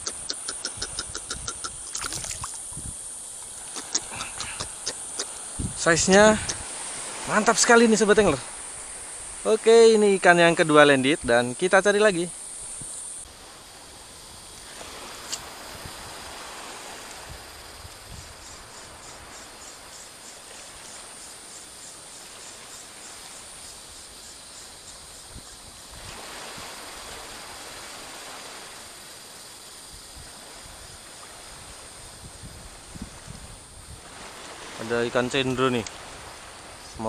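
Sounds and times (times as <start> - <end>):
faint quick ticking: 0.0 - 2.8, 3.4 - 5.5
small waves lapping: 0.0 - 10.9, 13.2 - 25.1, 25.7 - 37.0.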